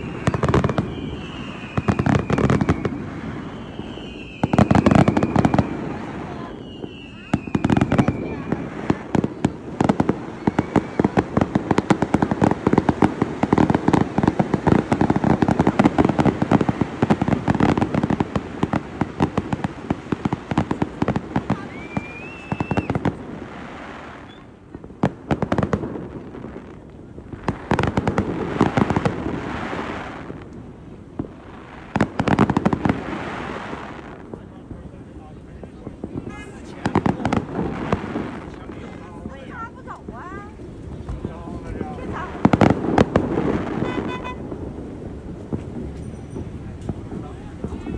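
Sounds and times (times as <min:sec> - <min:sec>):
firework rising whistle: 0:00.0 - 0:19.7, 0:20.7 - 0:24.6, 0:42.4 - 0:47.9
fireworks crackling and popping: 0:00.0 - 0:47.9.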